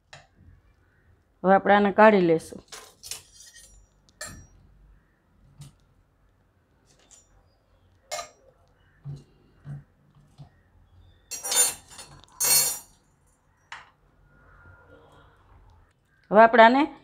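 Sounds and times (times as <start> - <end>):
metal spoon scraping pot: 11.3 - 13.0.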